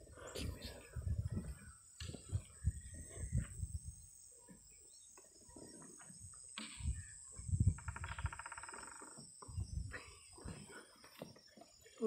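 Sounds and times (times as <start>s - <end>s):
animal rattling call: 7.8s - 9.2s.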